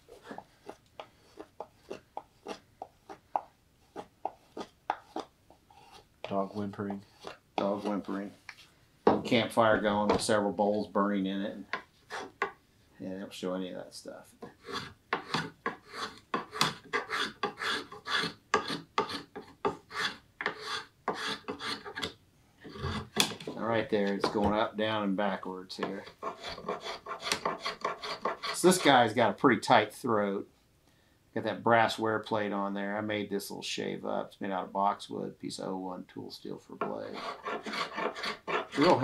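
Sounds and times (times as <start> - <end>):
spokeshave scraping wood: 3.8 - 8.4, 12.0 - 12.5, 14.4 - 22.0, 25.8 - 29.1, 36.8 - 39.0
spokeshave shaving wood: 37.1 - 39.0.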